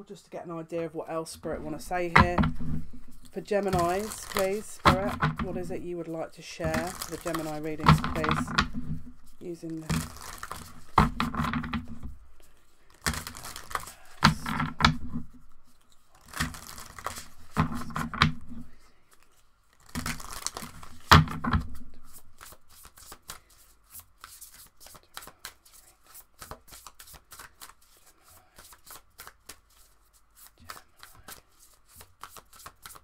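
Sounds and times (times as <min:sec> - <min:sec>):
cards shuffling: 0:01.6 - 0:05.9, 0:06.5 - 0:33.0
unclear voice: 0:03.3 - 0:08.6.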